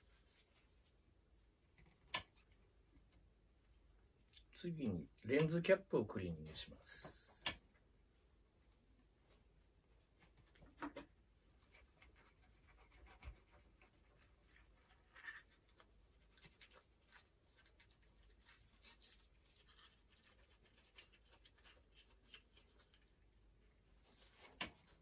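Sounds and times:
tissue rubbing a lens cap: 11.6s - 23.2s.

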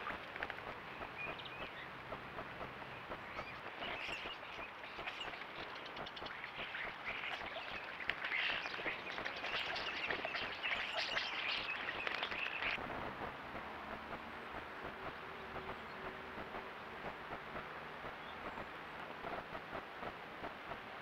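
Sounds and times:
birds splashing in water: 0.0s - 12.8s
wings flapping: 0.0s - 21.0s
starlings chattering and calling: 2.9s - 12.8s.

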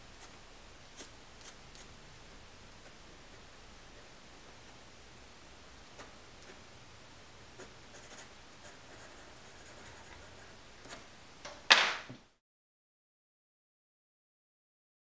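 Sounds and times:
pencil strokes on paper: 0.0s - 2.0s, 7.5s - 11.1s.

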